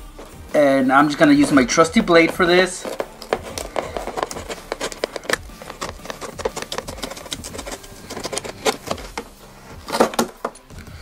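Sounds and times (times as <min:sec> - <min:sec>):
box cutter sawing through cardboard: 0:02.1 - 0:10.4.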